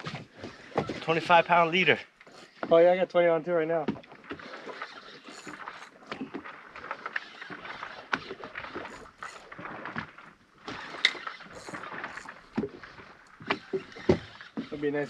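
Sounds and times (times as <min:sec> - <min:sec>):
water splashing against boat hull: 0:03.6 - 0:15.0.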